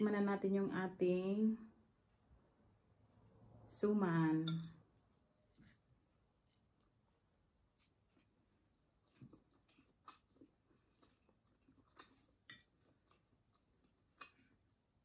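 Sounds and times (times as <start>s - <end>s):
person chewing: 5.5s - 14.8s.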